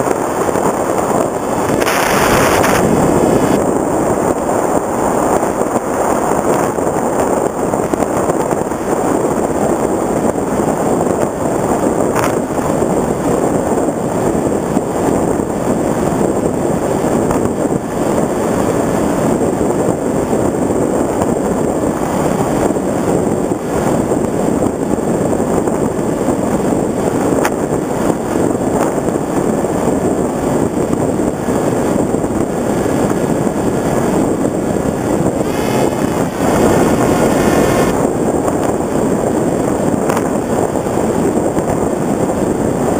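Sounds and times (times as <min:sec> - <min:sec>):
wind rush on microphone: 0:00.0 - 0:42.9
faint whine: 0:34.5 - 0:38.1.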